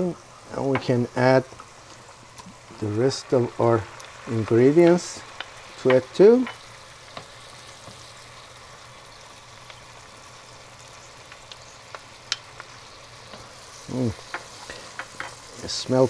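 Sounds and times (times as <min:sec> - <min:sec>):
food sizzling in butter and oil: 0:00.0 - 0:16.0
wooden spoon clicking against pan: 0:05.3 - 0:07.3, 0:11.3 - 0:12.7.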